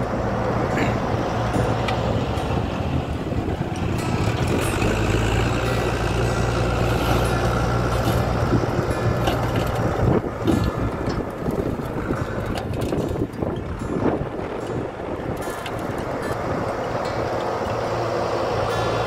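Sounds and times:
dump truck diesel engine running: 0.0s - 19.0s.

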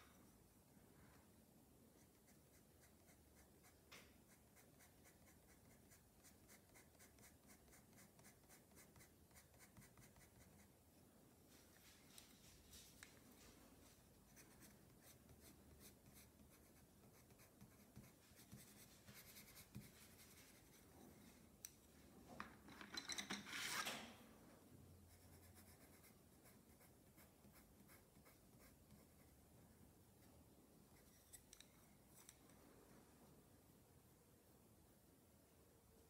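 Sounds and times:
pencil scratching on paper: 2.0s - 10.7s, 14.3s - 21.3s, 25.1s - 29.3s.

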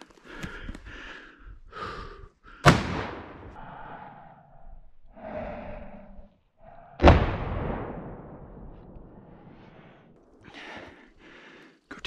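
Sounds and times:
soft breaths: 0.0s - 2.7s, 3.5s - 7.0s, 9.3s - 12.0s
rifle shot echoing: 2.6s - 3.6s, 7.0s - 9.8s.

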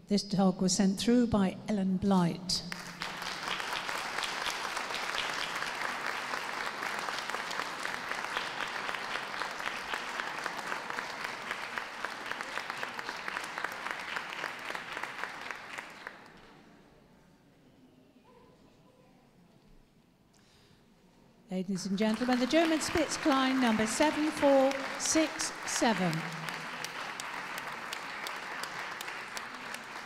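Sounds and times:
audience applauding: 2.7s - 16.4s, 21.8s - 30.0s.

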